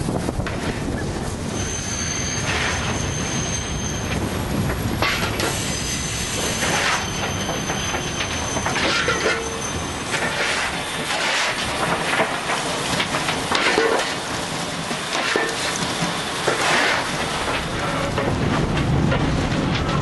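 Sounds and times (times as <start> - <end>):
steam locomotive rushing and clattering: 0.0 - 20.0
deep rumble: 17.1 - 20.0.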